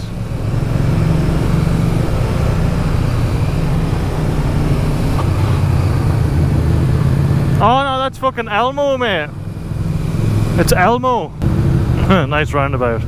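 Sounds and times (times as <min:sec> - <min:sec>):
motorcycle engine running: 0:00.0 - 0:13.0
road noise: 0:00.0 - 0:13.0.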